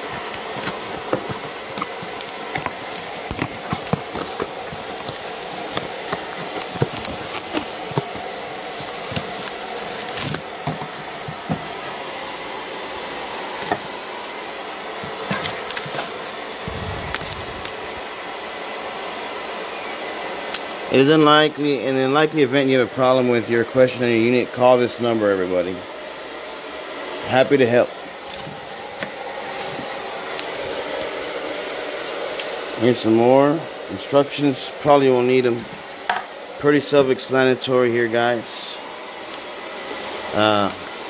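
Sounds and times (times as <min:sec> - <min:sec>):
bubble wrap and paper crinkling: 0:00.0 - 0:11.8, 0:15.0 - 0:18.1
steady whooshing background noise: 0:16.6 - 0:18.8.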